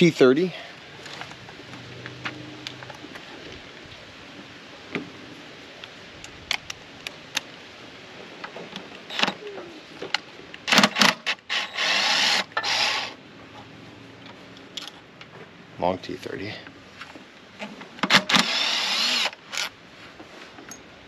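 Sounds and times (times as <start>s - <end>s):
cordless power driver whirring: 11.5s - 13.2s, 18.1s - 19.7s.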